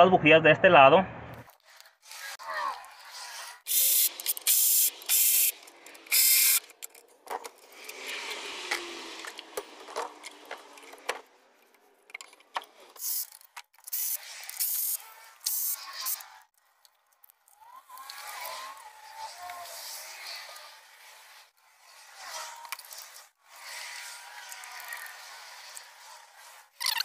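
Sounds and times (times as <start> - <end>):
ratchet wrench ratcheting: 3.1 - 11.1, 13.0 - 16.4, 26.8 - 27.0
tools and parts clicking: 3.7 - 18.3.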